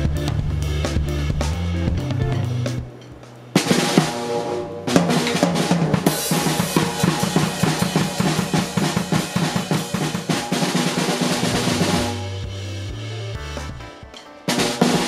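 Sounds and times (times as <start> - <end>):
drums played with sticks: 0.0 - 15.0
cymbal crash: 3.6 - 13.9.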